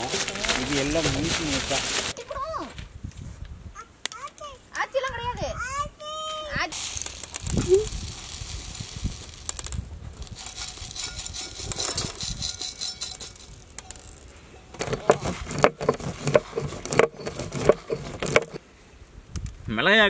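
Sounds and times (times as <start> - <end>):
peppercorns pouring onto stone: 6.7 - 18.6
clicks and knocks on stone: 13.2 - 18.6.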